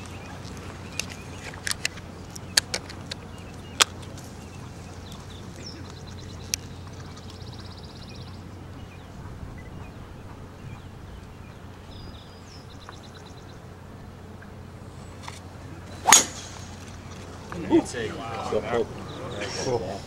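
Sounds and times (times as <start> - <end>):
murmur of crowd: 15.6 - 20.0
golf club striking ball: 16.0 - 17.3.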